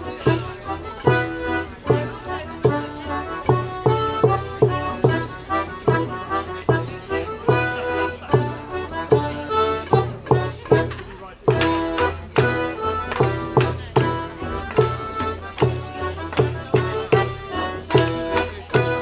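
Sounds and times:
accordion dance tune: 0.0 - 19.0
frame drum beating: 9.1 - 19.0.

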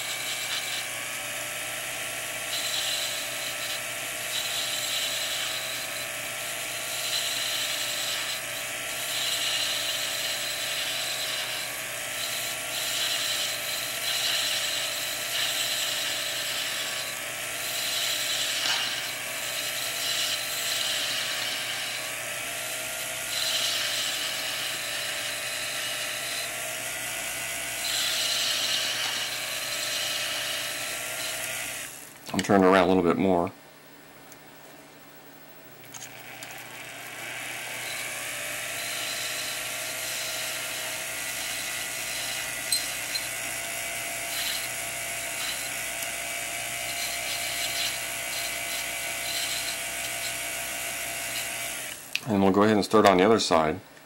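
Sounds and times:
lathe motor humming: 0.0 - 32.1, 36.0 - 52.2
graver scraping metal rod: 12.2 - 22.1, 27.8 - 31.5, 37.2 - 43.4, 44.3 - 46.2.

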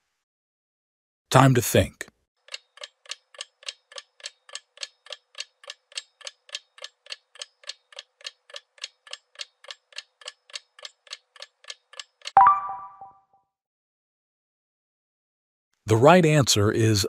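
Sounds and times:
clock-like timer ticking: 2.4 - 12.4.

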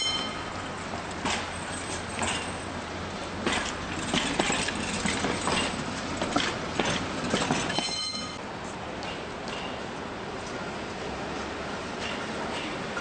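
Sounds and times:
short high ringing tone: 0.0 - 0.6, 7.8 - 8.4
train wheels clacking on rails: 0.0 - 11.1, 11.7 - 13.0.

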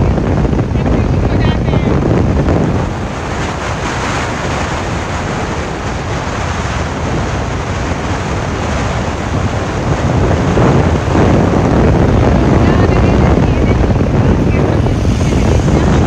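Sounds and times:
scooter road noise: 0.0 - 16.0
wind buffeting microphone: 0.0 - 16.0.

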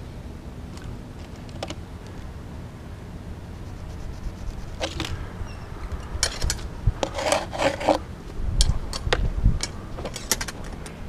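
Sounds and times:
rasping scrape: 6.2 - 8.1.

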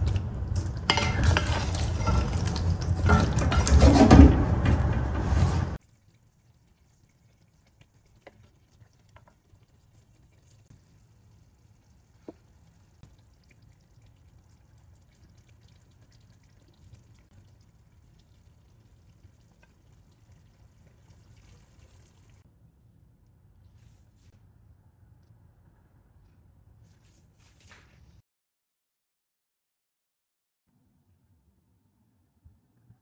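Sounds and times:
wet spooning sounds: 0.0 - 4.2.

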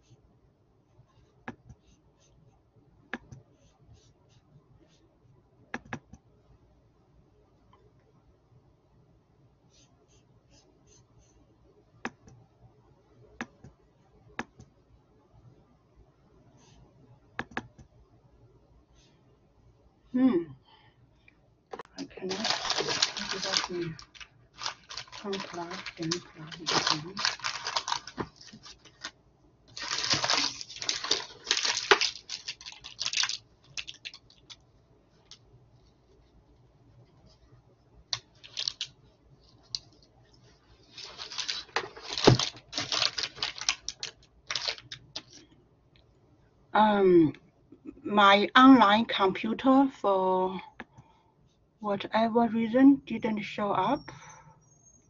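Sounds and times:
computer mouse clicking: 5.7 - 6.2, 17.4 - 17.9
rustling and handling noise: 21.2 - 45.7.

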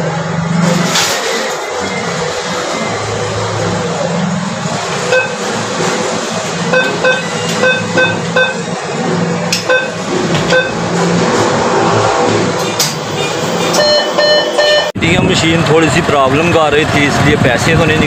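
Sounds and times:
steady background hum: 0.0 - 14.8
keypad beeping: 5.1 - 5.4, 6.7 - 8.7, 9.6 - 10.8, 13.8 - 14.9.

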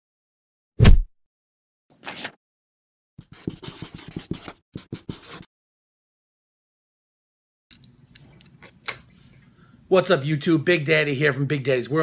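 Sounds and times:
short swish: 0.8 - 1.1
marker scratching on paper: 3.2 - 5.5.

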